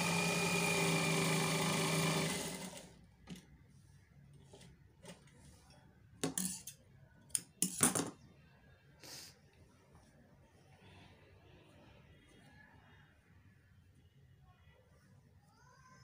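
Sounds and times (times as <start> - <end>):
sewing machine running: 0.0 - 3.0.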